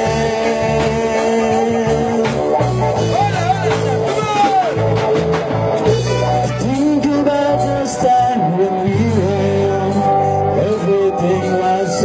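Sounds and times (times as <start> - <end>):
person singing: 0.0 - 4.8, 5.8 - 12.0
percussion beat: 0.0 - 8.2
bass notes: 0.0 - 12.0.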